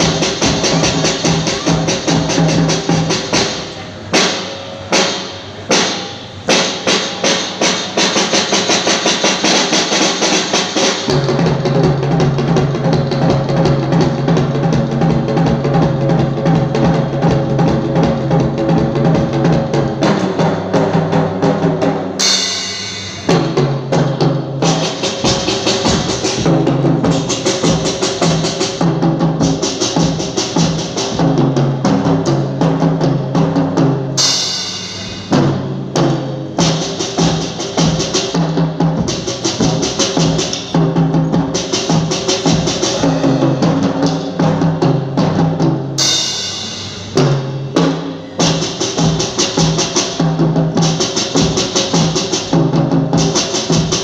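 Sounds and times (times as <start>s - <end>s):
drum kit playing a beat: 0.0s - 54.0s
cymbal crashes: 22.2s - 23.8s, 34.2s - 38.4s, 41.6s - 45.2s, 46.0s - 50.2s.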